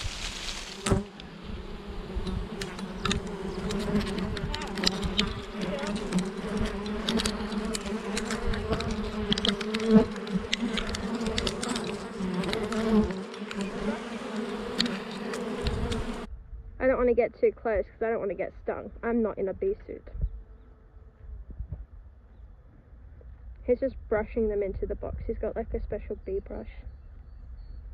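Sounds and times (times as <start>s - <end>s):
bee swarm buzzing: 0.0s - 16.3s
sharp ticks: 2.2s - 16.2s.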